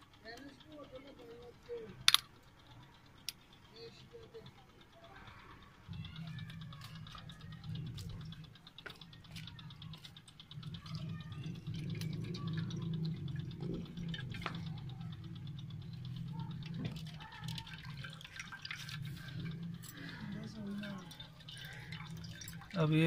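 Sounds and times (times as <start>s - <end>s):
fast faint ticking: 0.0s - 23.0s
low hum: 0.8s - 23.0s
water pouring into a strainer: 16.6s - 23.0s.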